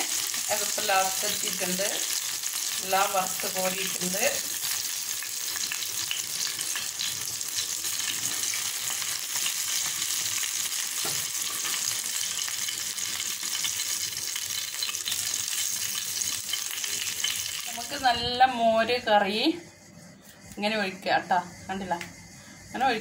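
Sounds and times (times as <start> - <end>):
fish sizzling in hot oil: 0.0 - 18.1.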